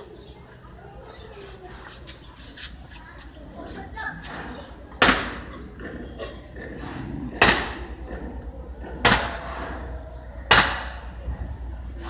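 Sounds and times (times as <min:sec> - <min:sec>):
loud sharp bangs: 0:05.0 - 0:05.6, 0:06.6 - 0:08.1, 0:08.8 - 0:11.2.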